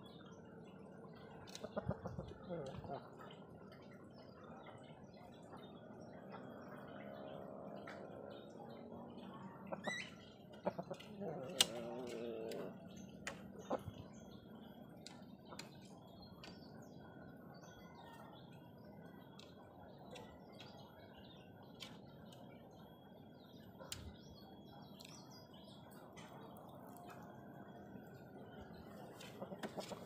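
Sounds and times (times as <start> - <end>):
bird chirps: 4.3 - 30.0.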